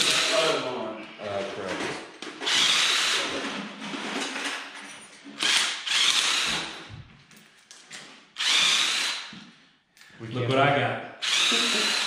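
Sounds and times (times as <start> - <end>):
cordless power driver whirring: 5.5 - 6.7, 8.4 - 9.3, 11.2 - 12.0.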